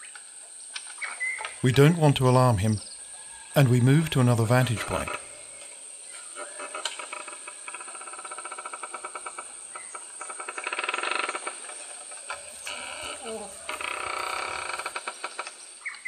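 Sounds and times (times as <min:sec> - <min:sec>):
insects fast pulsing chirr: 0:00.0 - 0:16.0
insects high-pitched trill: 0:02.6 - 0:16.0.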